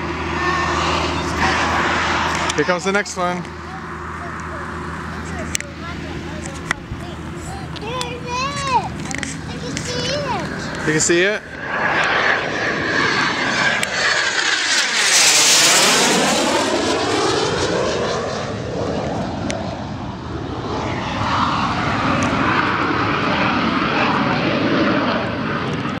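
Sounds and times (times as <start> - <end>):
airplane passing overhead: 0.0 - 26.0.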